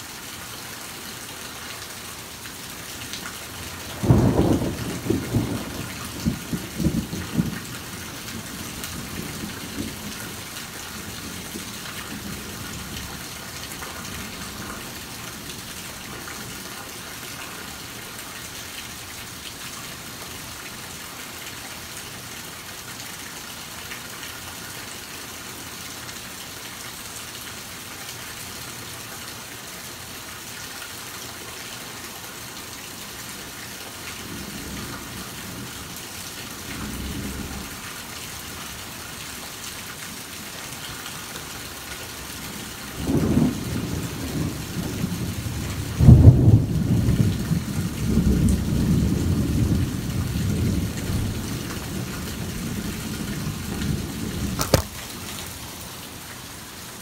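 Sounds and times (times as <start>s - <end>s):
heavy rain on a lawn: 0.0s - 57.0s
low rumble of thunder: 3.8s - 13.3s, 36.6s - 37.9s, 43.0s - 54.6s.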